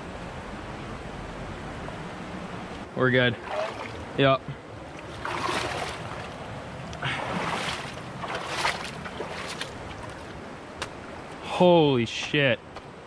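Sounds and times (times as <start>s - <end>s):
river water sloshing and splashing: 1.8s - 11.4s.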